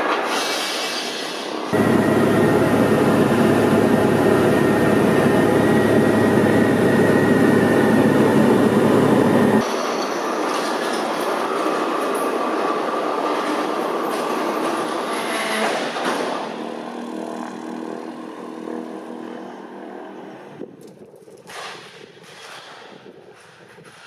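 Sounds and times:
propeller plane engine drone: 1.7s - 9.7s, 16.1s - 21.4s
rushing noise: 1.7s - 9.8s.

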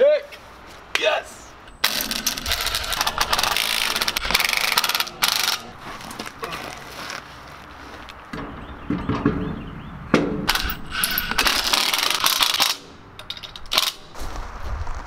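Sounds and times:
cordless driver rattling buzz: 1.7s - 5.8s
knocks and scrapes of wheel handling: 1.7s - 12.5s.

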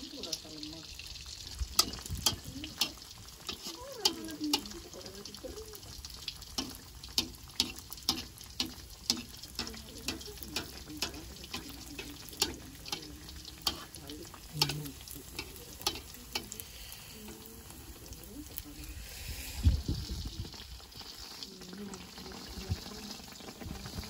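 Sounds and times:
batter sizzling in oil: 0.0s - 24.0s
oil popping: 0.0s - 24.0s.

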